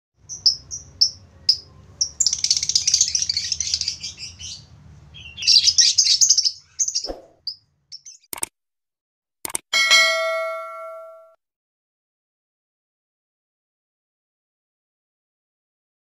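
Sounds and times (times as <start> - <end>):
budgerigars chirping and chattering: 0.2 - 8.3.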